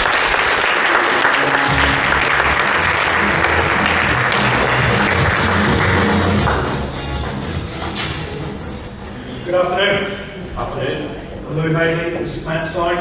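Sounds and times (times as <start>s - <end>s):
audience applauding: 0.0s - 8.1s
background music with bass: 1.4s - 9.5s.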